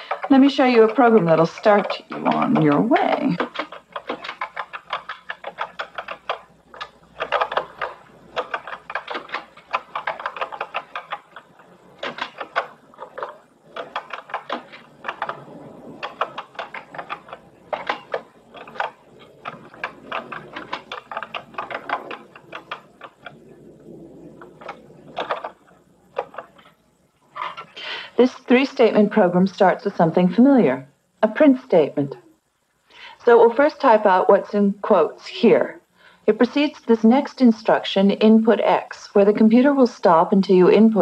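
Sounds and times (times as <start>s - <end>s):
clicky keyboard typing: 0.0s - 23.6s.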